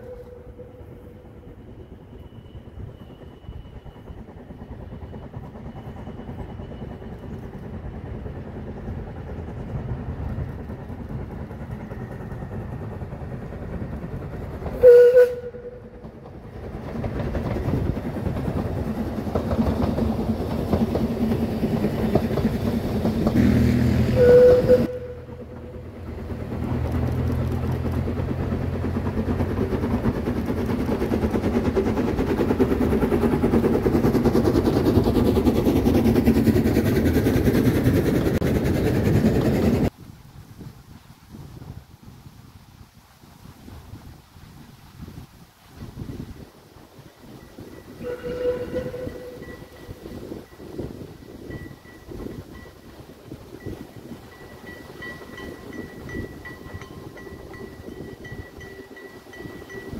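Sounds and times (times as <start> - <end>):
steam whistle blasts: 0.0 - 1.0, 14.8 - 15.9, 23.4 - 25.8, 48.0 - 49.7
steam train running past: 0.0 - 40.0, 42.8 - 59.9.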